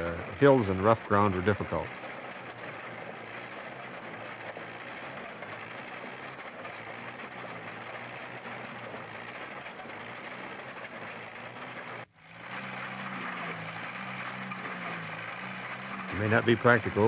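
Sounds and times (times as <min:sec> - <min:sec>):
walking tractor engine running: 0:00.0 - 0:17.0.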